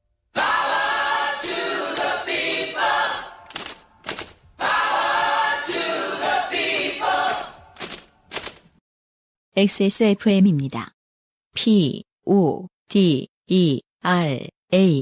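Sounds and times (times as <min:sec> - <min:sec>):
voices singing a cappella jingle: 0:00.4 - 0:03.5, 0:04.6 - 0:07.8.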